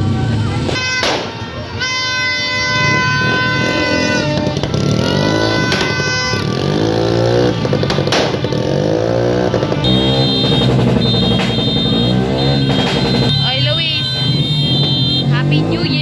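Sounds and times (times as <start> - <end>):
engines revving: 0.0 - 16.0
firecracker bangs: 0.6 - 1.5, 2.9 - 8.8, 9.5 - 15.2
high steady horn tone: 0.6 - 16.0
long horn blast: 0.7 - 15.7.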